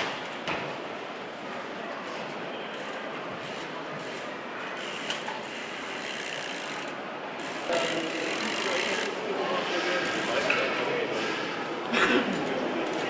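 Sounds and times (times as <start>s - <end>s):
hall background noise: 0.0s - 13.0s
bicycle freewheel ratcheting: 2.7s - 10.9s, 12.3s - 13.0s.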